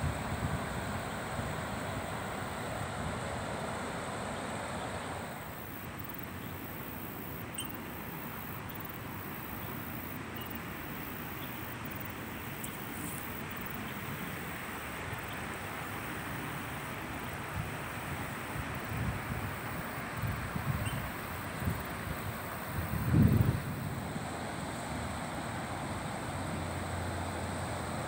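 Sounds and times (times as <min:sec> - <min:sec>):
river water flowing over weir: 0:00.0 - 0:28.0
wind buffeting microphone: 0:21.6 - 0:24.0.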